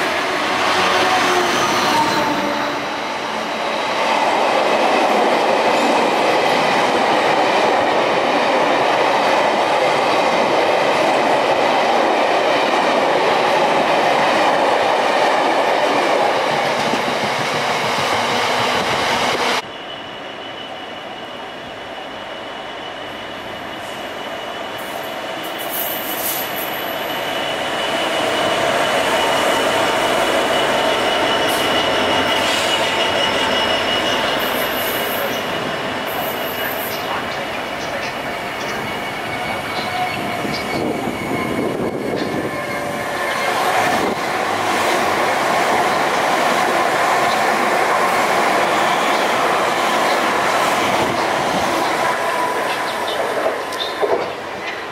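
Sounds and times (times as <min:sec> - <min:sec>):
diesel locomotive approaching: 0:00.0 - 0:54.9
freight train wheels rumbling: 0:00.0 - 0:54.9
high wheel squeal: 0:19.6 - 0:44.2, 0:47.3 - 0:54.8.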